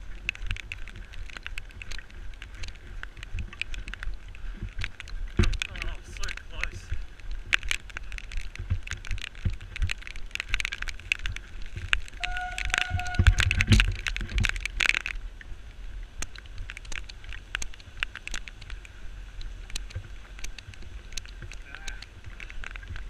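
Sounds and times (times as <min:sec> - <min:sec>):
camera rattling: 0:00.0 - 0:15.2
brief steady tone: 0:12.2 - 0:13.4.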